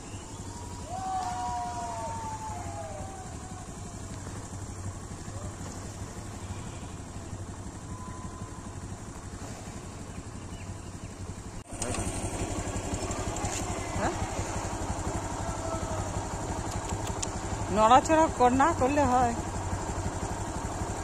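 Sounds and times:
engine idling low rumble: 0.0s - 21.0s.

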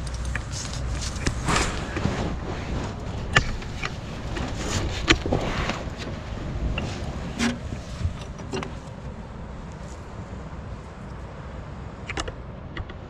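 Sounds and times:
low uneven rumble: 0.0s - 13.0s
sharp clicks and knocks: 12.1s - 13.0s.

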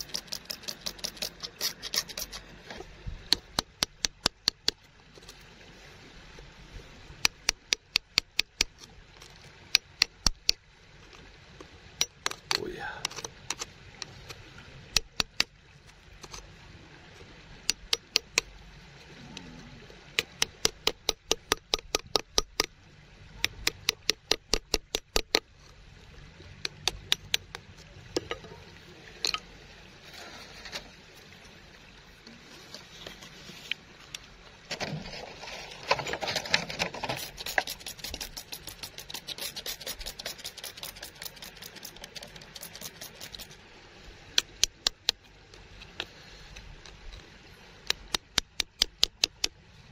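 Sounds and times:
hand tool scraping gravelly soil: 0.0s - 2.9s, 34.7s - 43.6s.

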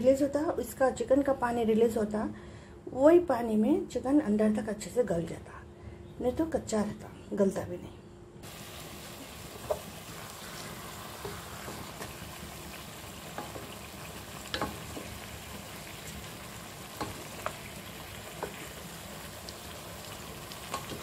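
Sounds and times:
chicken sizzling in oil: 8.4s - 21.0s
spatula scraping a pan: 9.7s - 12.4s.

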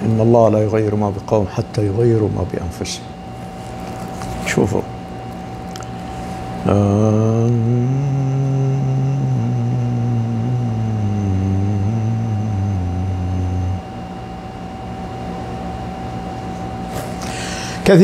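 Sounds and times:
faint electrical hum: 0.0s - 18.0s
man humming: 6.6s - 14.0s.

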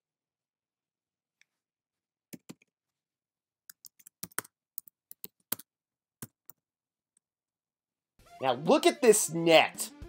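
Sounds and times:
keyboard typing: 3.7s - 6.6s.

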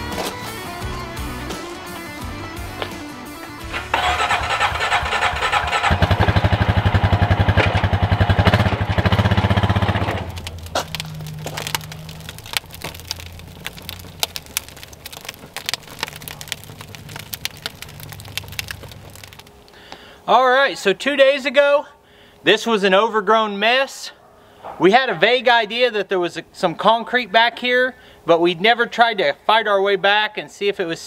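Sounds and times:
light clicks and crackles: 10.2s - 20.0s.

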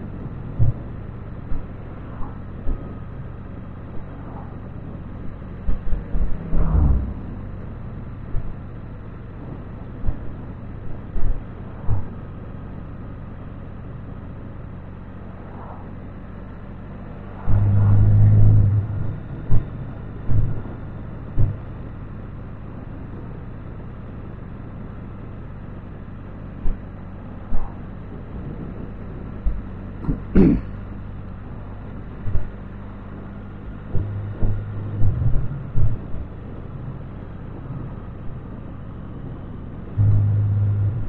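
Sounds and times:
motorcycle engine hum: 0.0s - 41.0s
wind rumble on microphone: 0.0s - 41.0s
short thumps: 21.4s - 21.6s, 33.8s - 36.4s, 40.0s - 41.0s.

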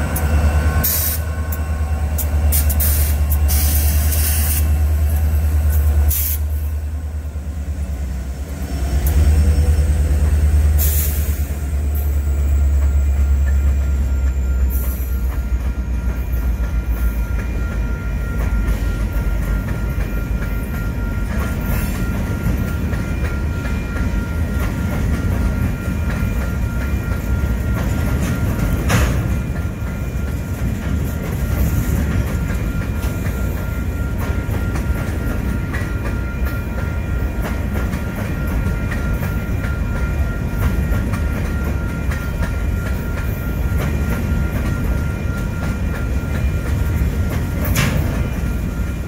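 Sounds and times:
train wheels rumbling on rail: 0.0s - 49.0s.

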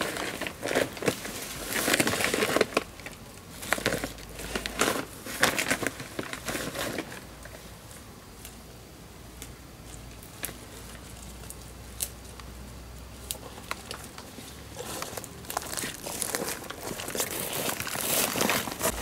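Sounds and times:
leaves and undergrowth rustling: 0.0s - 19.0s
plant stems snapping: 11.3s - 12.5s, 13.2s - 14.4s.

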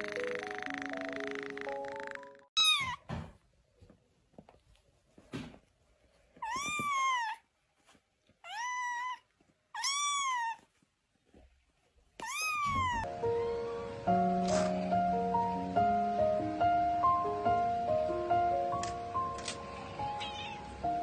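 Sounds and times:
background music: 0.0s - 2.5s, 13.1s - 21.0s
kitten meowing: 2.6s - 3.0s, 6.4s - 7.4s, 8.5s - 9.2s, 9.8s - 10.6s, 12.2s - 13.1s, 20.2s - 20.6s.

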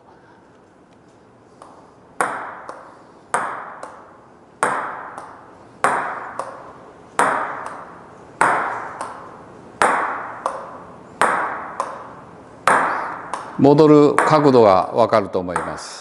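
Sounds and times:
table tennis ball hits: 1.6s - 14.8s, 15.5s - 16.0s.

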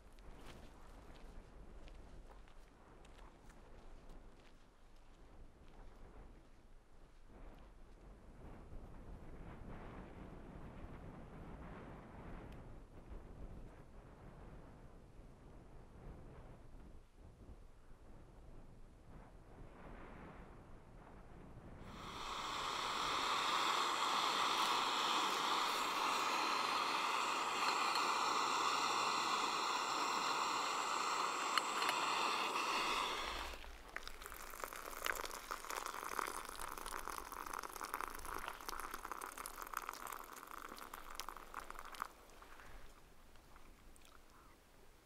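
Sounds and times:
gas stove hissing: 21.9s - 38.0s.

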